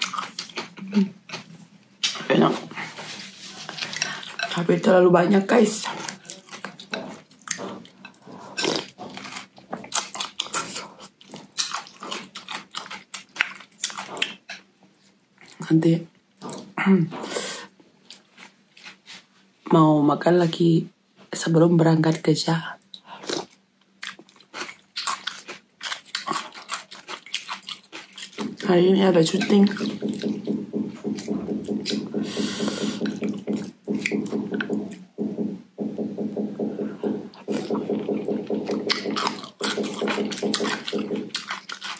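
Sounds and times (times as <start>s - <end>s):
person chewing: 0.0s - 4.7s, 5.6s - 15.7s, 16.4s - 16.8s, 17.4s - 19.3s, 22.8s - 35.4s, 36.2s - 41.9s
low pulsing hum: 29.4s - 41.4s.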